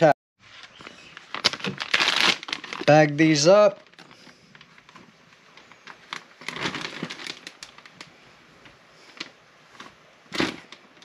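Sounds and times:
plastic bag crinkling: 0.5 - 8.2.

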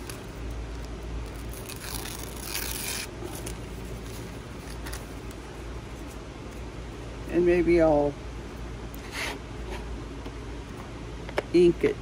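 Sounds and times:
paper tearing: 0.0 - 5.1.

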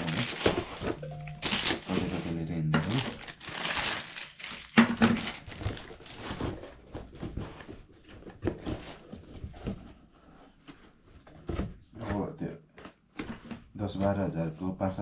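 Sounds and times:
plastic wrapping crinkling: 0.0 - 8.8.

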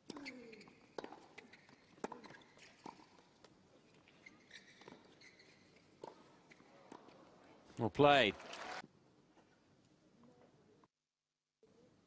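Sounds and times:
sneaker squeaks on court: 0.1 - 3.0, 4.0 - 6.6
tennis ball bouncing: 0.1 - 3.2, 6.0 - 7.1.

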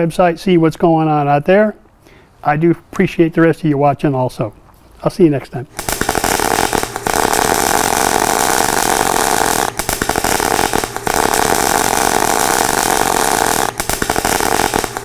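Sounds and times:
power tool running: 5.9 - 15.0.

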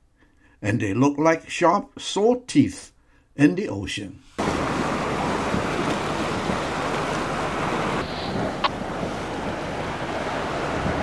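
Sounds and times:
sea water splashing around boat: 4.4 - 11.0
wind on microphone: 4.4 - 11.0.

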